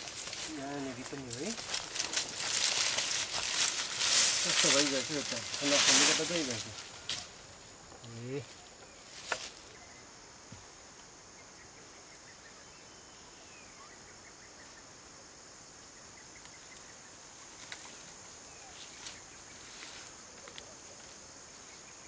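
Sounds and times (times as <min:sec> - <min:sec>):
faint bird chirps: 0:11.3 - 0:15.0.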